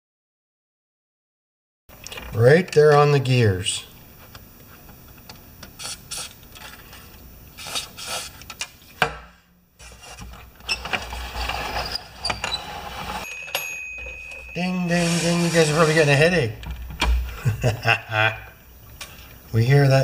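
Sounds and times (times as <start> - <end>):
small bell ding: 13.2 - 14.9.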